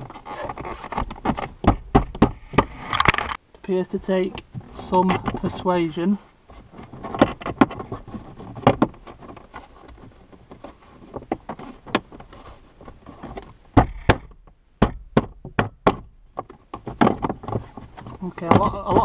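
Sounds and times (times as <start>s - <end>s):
knocks on hard plastic: 1.2s - 2.7s, 13.8s - 16.1s.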